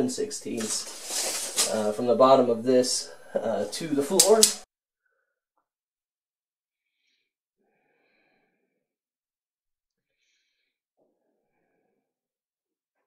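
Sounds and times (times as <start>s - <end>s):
person breathing softly: 6.9s - 8.8s, 10.0s - 12.1s.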